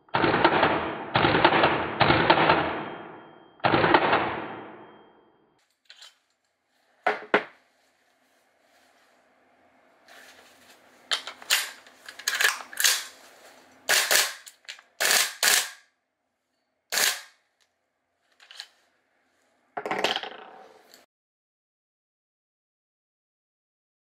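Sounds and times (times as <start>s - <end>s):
airsoft rifle burst: 11.4s - 13.2s, 13.8s - 15.8s, 16.9s - 17.4s.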